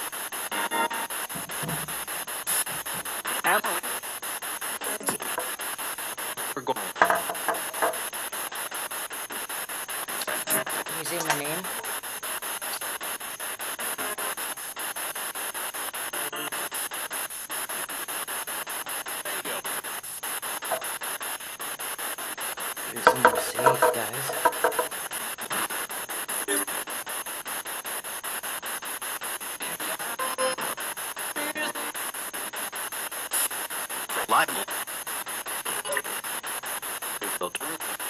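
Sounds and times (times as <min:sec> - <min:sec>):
choppy radio static: 0:00.0 - 0:38.0
garbled broadcast voice fragments: 0:02.5 - 0:08.8, 0:09.4 - 0:13.0, 0:19.2 - 0:21.0, 0:22.8 - 0:25.7, 0:26.3 - 0:26.9, 0:29.6 - 0:30.8, 0:34.1 - 0:34.8, 0:35.6 - 0:36.3, 0:37.2 - 0:38.0.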